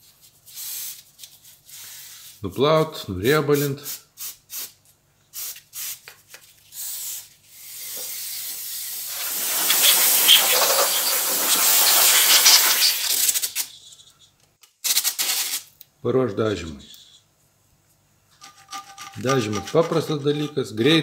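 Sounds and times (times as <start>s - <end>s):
pressurised spray hissing: 6.8s - 13.6s
brush scrubbing: 9.1s - 13.0s, 18.4s - 20.5s.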